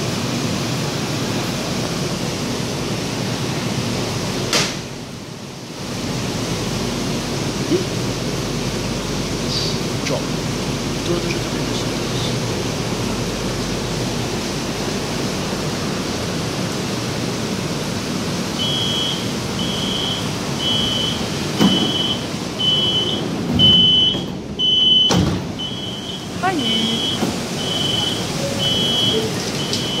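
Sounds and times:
heavy rain hissing: 5.3 - 23.5, 25.5 - 30.0
train door warning beeps: 18.6 - 30.0
sliding doors knocking: 21.2 - 26.0, 27.0 - 30.0.

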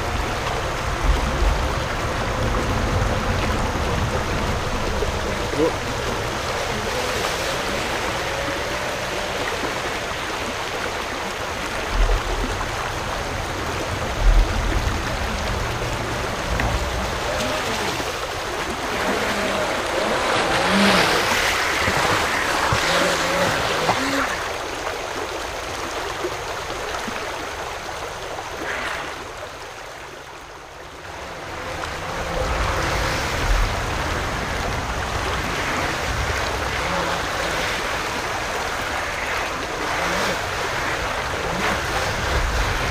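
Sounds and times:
water rushing over rocks: 0.0 - 42.9
rc boat electric motor: 18.8 - 24.4, 39.7 - 42.3.

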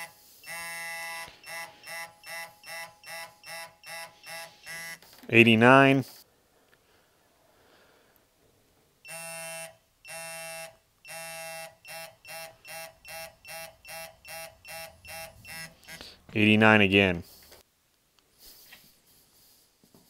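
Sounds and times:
torque wrench beeping: 0.0 - 5.1, 9.1 - 16.2.

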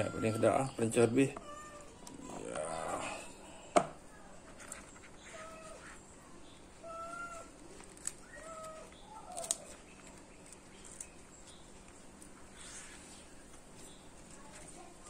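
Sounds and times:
leaf crackling as folded: 4.3 - 15.0.

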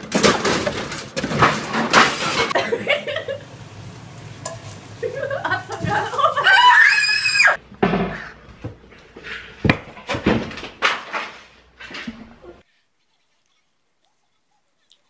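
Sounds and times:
person screaming: 6.4 - 7.6
sharp knocks and clatters: 9.6 - 12.3.

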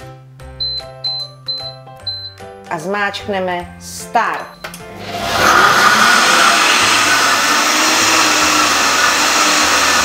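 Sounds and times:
blender motor running: 5.0 - 10.0.

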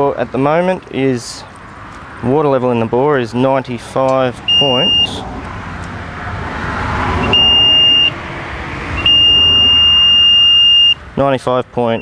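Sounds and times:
high-pitched electronic beeps: 7.3 - 8.2, 9.0 - 11.0.

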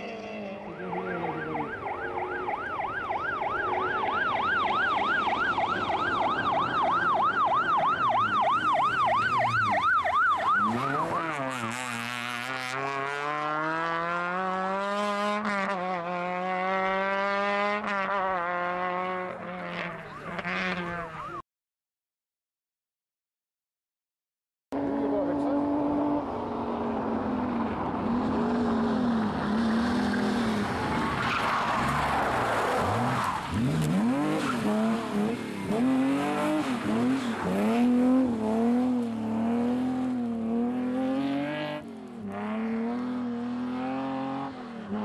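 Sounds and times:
electronic siren yelping: 0.0 - 11.6, 20.0 - 21.4
car engine accelerating: 0.0 - 21.3, 24.8 - 45.0.

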